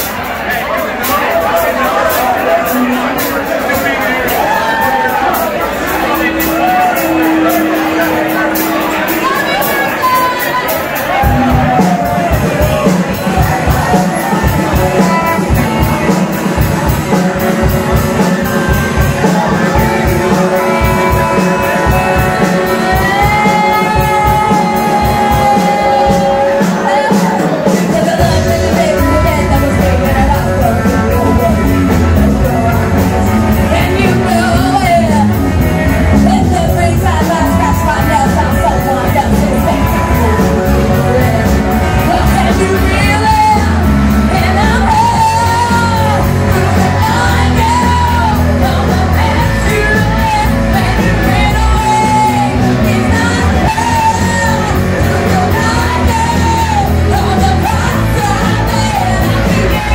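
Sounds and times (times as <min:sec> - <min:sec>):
live rock band playing: 0:00.0 - 0:59.9
singer holding wavering notes: 0:02.2 - 0:12.2.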